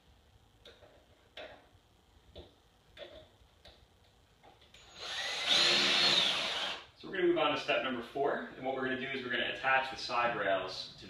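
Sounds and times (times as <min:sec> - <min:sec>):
cordless drill driving a screw: 0:04.8 - 0:06.8.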